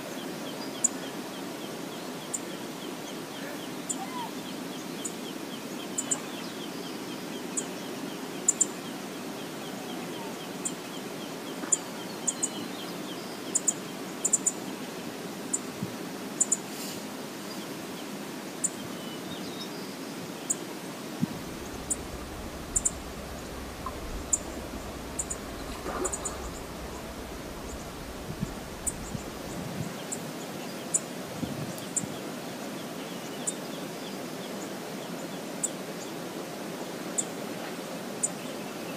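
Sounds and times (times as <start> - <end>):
river flowing: 19.9 - 31.3
sharp high-pitched ticks: 21.5 - 29.6.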